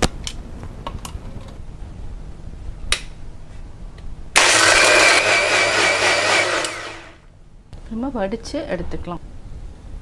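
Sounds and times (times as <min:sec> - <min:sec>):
blender motor running: 0:04.4 - 0:07.2.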